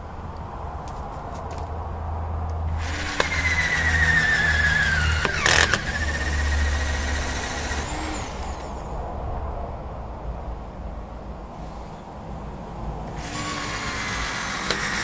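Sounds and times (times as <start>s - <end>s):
electric drill whining: 2.8s - 9.0s, 13.1s - 15.0s.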